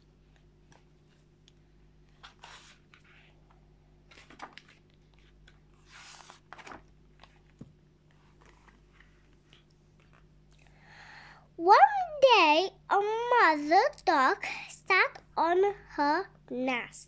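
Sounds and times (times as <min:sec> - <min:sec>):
low steady hum: 0:00.0 - 0:17.0
book pages turning: 0:00.2 - 0:10.4.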